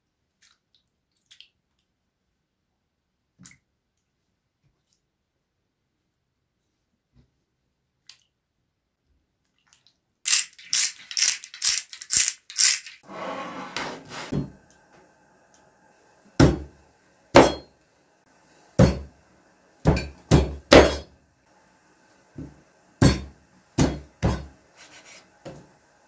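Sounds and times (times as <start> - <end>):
cutting board scraping on table: 13.0 - 14.5.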